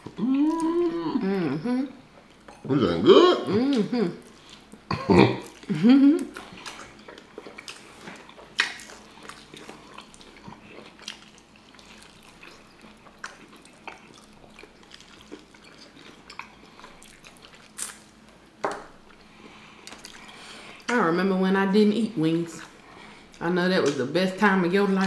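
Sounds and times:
wet chewing: 0:05.4 - 0:21.0
lip smacks: 0:05.5 - 0:10.1.

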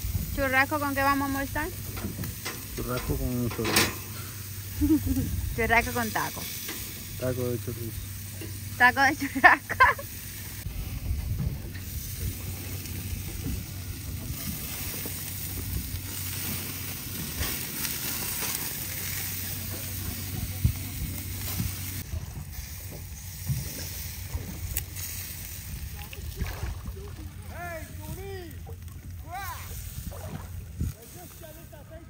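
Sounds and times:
meat sizzling on a grill: 0:00.0 - 0:26.4, 0:29.2 - 0:30.1, 0:30.7 - 0:31.9.

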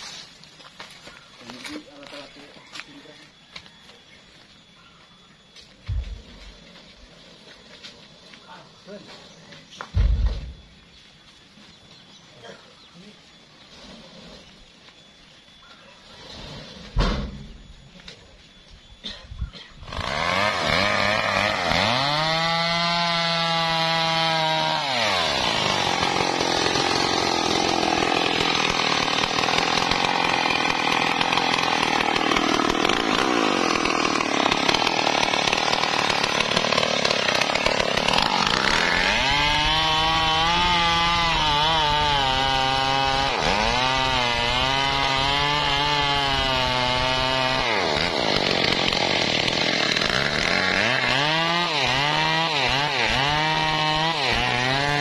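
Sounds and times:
chainsaw cutting wood: 0:19.8 - 0:55.0.

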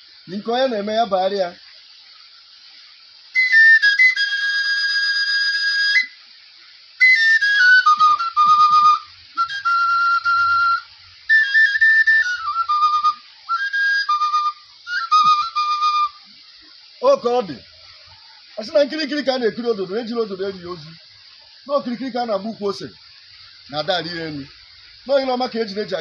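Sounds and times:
high piercing wooden flute: 0:03.3 - 0:06.2, 0:07.0 - 0:16.4.

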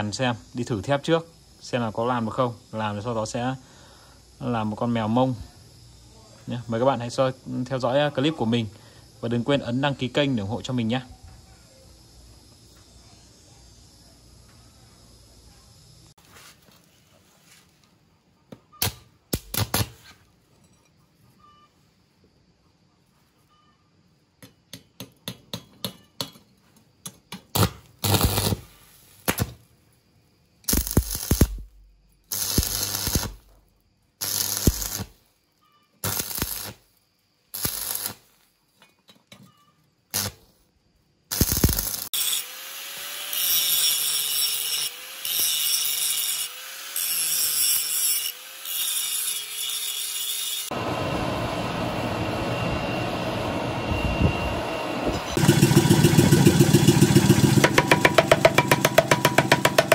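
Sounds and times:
power tool bursts: 0:27.6 - 0:29.4, 0:30.7 - 0:31.7, 0:32.3 - 0:33.5, 0:34.2 - 0:35.2, 0:36.0 - 0:36.8, 0:37.6 - 0:38.2, 0:41.3 - 0:51.3, 0:54.8 - 0:59.9
wavering power tool whine: 0:41.8 - 0:59.9.

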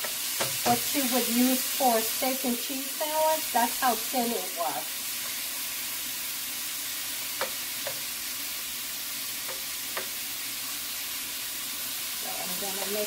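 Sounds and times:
spatula knocking against pan: 0:00.0 - 0:00.8, 0:07.3 - 0:08.1, 0:09.4 - 0:10.2
steak sizzling in a frying pan: 0:00.0 - 0:13.0.

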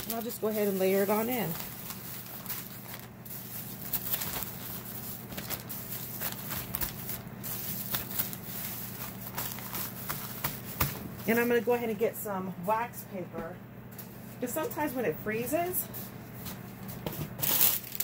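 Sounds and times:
plastic bags crinkling: 0:00.0 - 0:11.5, 0:17.4 - 0:18.0.

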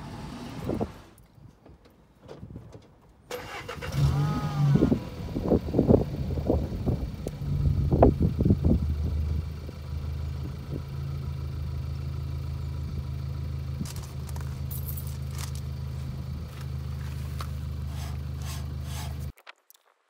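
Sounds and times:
vehicle engine idling: 0:03.4 - 0:19.3
brake disc clicks and scrapes: 0:16.6 - 0:19.4.

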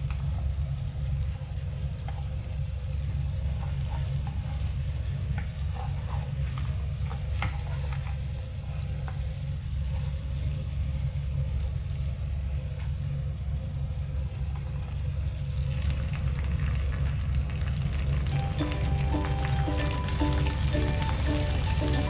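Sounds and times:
garlic sizzling in butter: 0:20.0 - 0:22.0.

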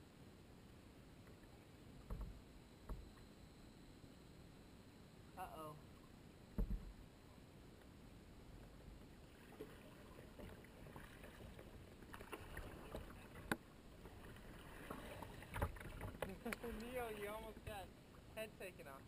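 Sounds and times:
water lapping along kayak hull: 0:00.0 - 0:19.0
light clicks and knocks: 0:02.0 - 0:03.2.

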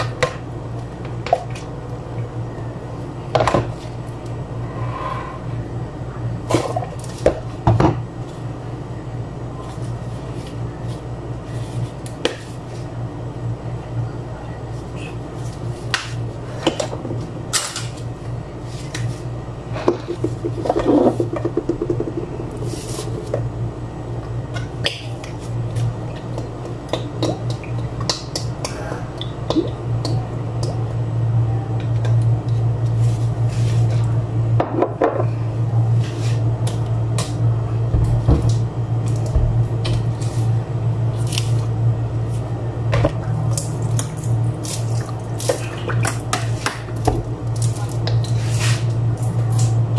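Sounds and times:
steady low hum: 0:00.0 - 0:49.9
hands squishing wet meat: 0:41.1 - 0:41.7, 0:43.4 - 0:48.9.

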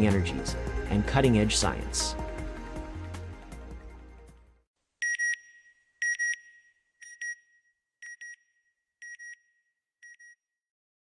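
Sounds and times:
music: 0:00.0 - 0:04.7.

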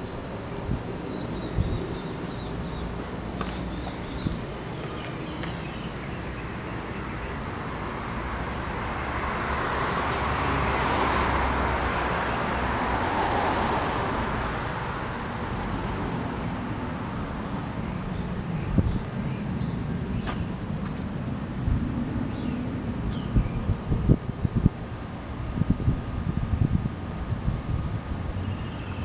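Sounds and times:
car passing on street: 0:00.0 - 0:23.1.

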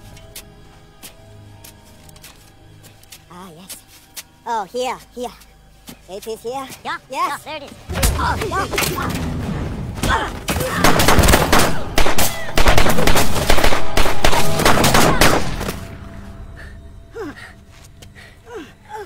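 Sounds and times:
rapid handgun shots: 0:10.8 - 0:15.8.

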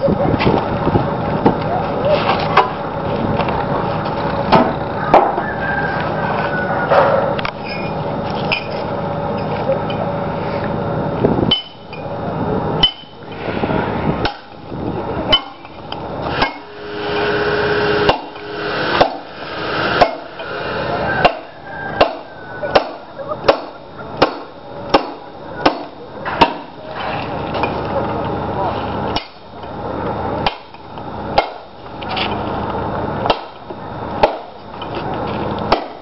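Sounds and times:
steady noise: 0:10.2 - 0:32.0.

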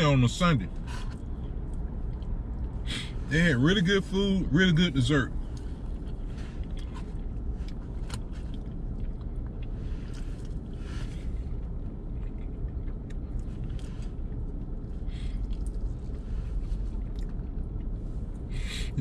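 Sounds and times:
chewing: 0:05.5 - 0:18.0.

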